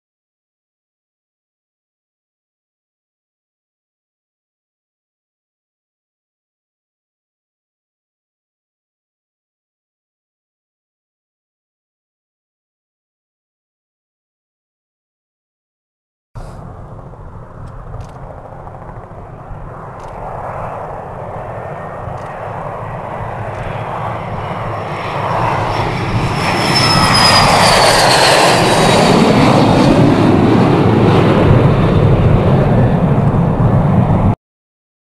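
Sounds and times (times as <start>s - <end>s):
high turbine whine: 16.4s - 34.4s
jet engines taking off: 16.4s - 34.4s.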